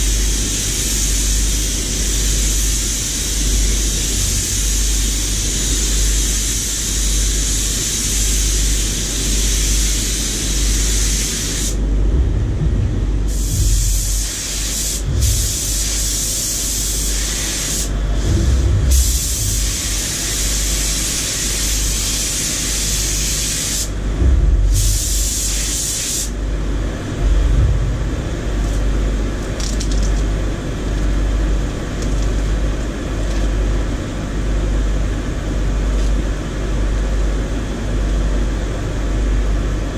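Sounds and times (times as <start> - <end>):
low air handling hum: 0.0 - 39.9
paint spray gun hissing: 0.2 - 11.8, 13.3 - 17.9, 18.9 - 23.9, 24.7 - 26.4.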